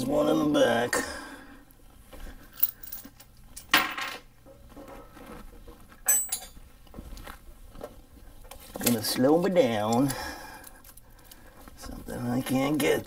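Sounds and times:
metal tools clinking: 2.5s - 4.2s, 6.0s - 6.6s.

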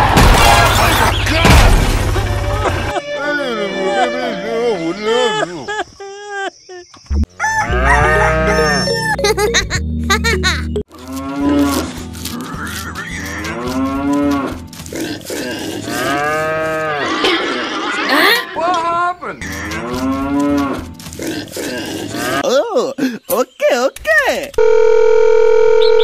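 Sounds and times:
cow mooing: 7.6s - 8.9s, 11.0s - 17.0s.

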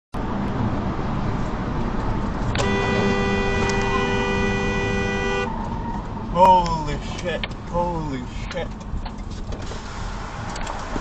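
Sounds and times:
vehicle road and engine rumble: 0.1s - 11.0s
car horn two-note tone: 2.6s - 5.5s.

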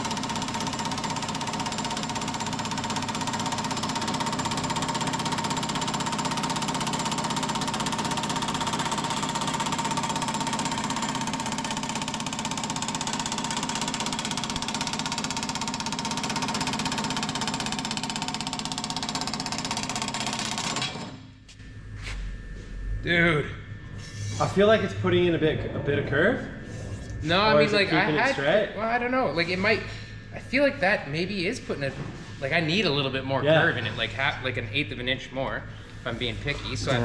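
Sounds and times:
power hammer rapid blows: 0.0s - 21.2s.

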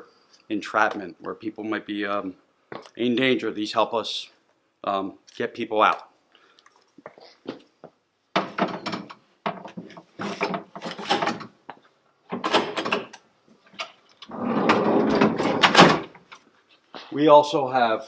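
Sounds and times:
metal tools knocking and rattling: 8.3s - 11.5s.

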